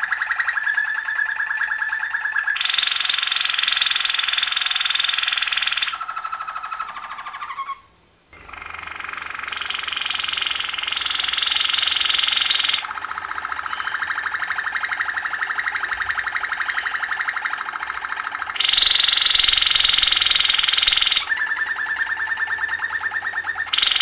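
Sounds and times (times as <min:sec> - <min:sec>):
canary singing trills: 0:00.0 - 0:24.0.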